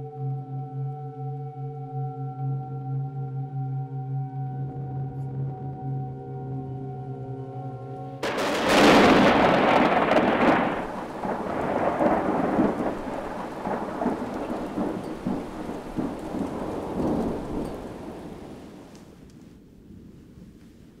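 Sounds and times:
thunder crack: 8.2 - 19.3
rolling thunder rumble: 8.2 - 21.0.

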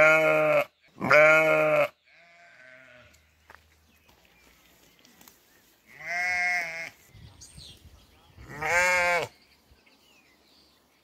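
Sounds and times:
sheep bleating: 0.0 - 3.2, 5.9 - 7.0, 8.4 - 9.4.

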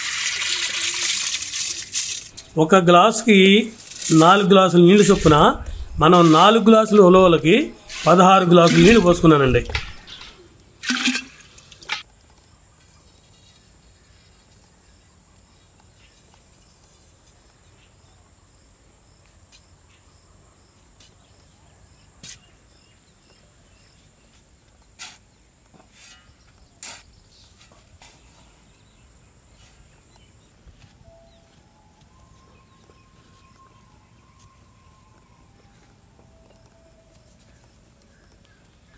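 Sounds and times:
spade digging into dry soil: 3.7 - 10.4
faint high insect drone: 13.9 - 24.1.

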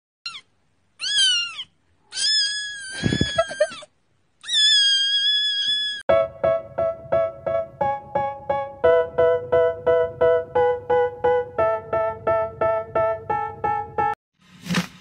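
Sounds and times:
kitten meowing: 0.3 - 3.8, 4.4 - 6.0
electronic keyboard notes: 6.1 - 14.2.

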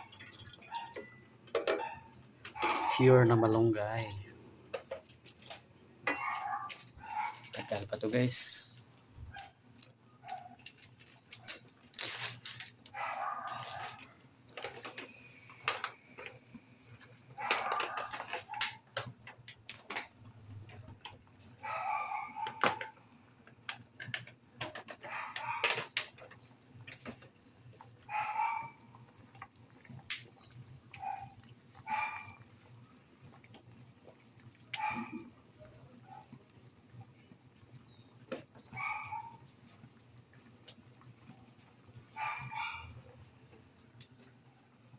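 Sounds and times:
soup bubbling and popping: 0.0 - 3.0, 9.4 - 44.5
animal calls: 21.6 - 22.8, 34.7 - 36.3, 38.7 - 39.5, 42.2 - 43.0.

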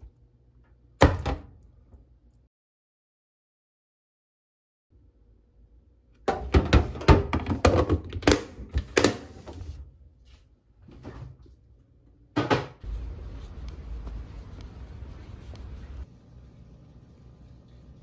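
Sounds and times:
low outdoor rumble: 12.8 - 18.0.

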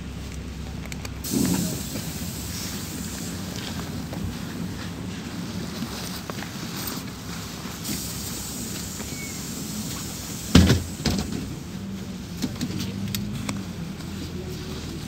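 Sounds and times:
bus engine humming: 0.0 - 15.0
bus doors thumping shut: 1.2 - 4.2, 7.8 - 11.6.

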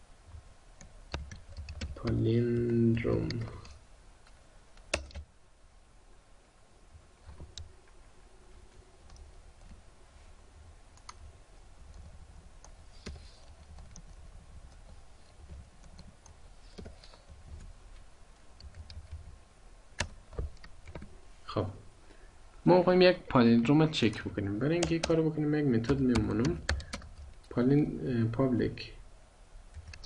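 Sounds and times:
faint low hum: 0.0 - 30.0
keyboard and mouse clicks: 0.8 - 5.3, 10.9 - 11.3, 11.9 - 17.7, 18.6 - 19.3, 20.0 - 21.1, 24.8 - 25.2, 25.8 - 27.5, 29.7 - 30.0.

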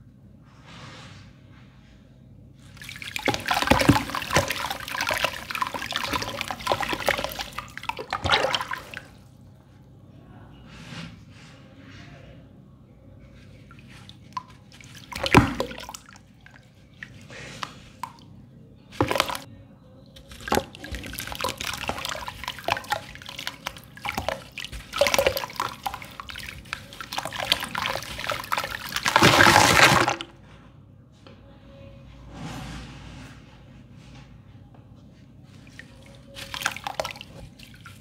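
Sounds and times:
lumps plopping into water: 2.8 - 9.1, 14.3 - 16.1, 19.0 - 19.5, 20.3 - 30.2
wet crumbling patter: 18.9 - 19.5, 20.2 - 30.3.

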